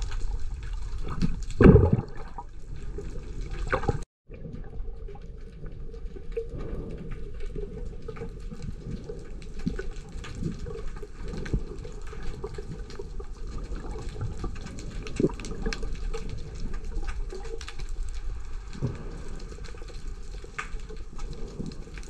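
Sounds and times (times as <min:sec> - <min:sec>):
faint clicks and crackles: 0:00.0 - 0:22.0
muffled underwater rush: 0:00.0 - 0:22.0.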